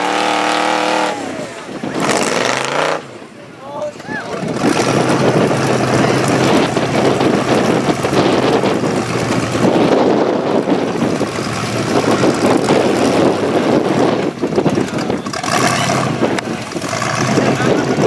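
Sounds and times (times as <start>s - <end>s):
buggy engine running hard: 0.0s - 18.0s.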